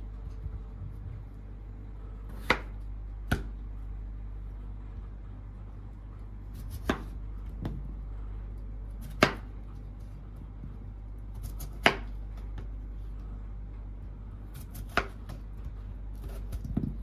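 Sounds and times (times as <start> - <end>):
steady low hum: 0.0 - 17.0
knife chopping on wooden board: 2.3 - 3.5, 6.5 - 7.8, 9.0 - 9.5, 11.3 - 12.7, 14.5 - 17.0.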